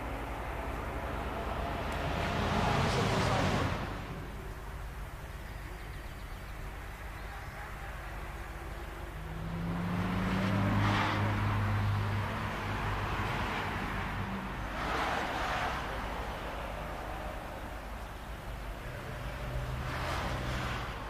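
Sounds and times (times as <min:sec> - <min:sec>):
car accelerating away: 0:00.0 - 0:04.6, 0:08.6 - 0:18.0.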